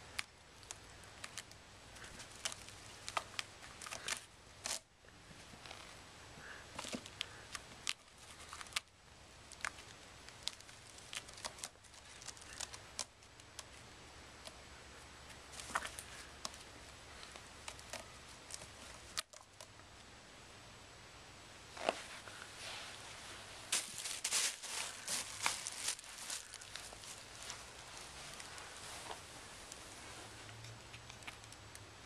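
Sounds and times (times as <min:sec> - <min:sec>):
claws scratching rope: 0:00.0 - 0:06.0, 0:06.6 - 0:08.9, 0:09.5 - 0:19.7, 0:21.8 - 0:31.9
faint low hum: 0:00.0 - 0:32.0.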